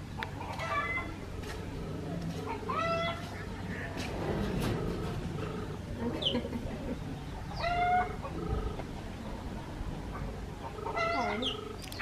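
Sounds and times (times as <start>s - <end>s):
birds calling: 0.1s - 12.0s.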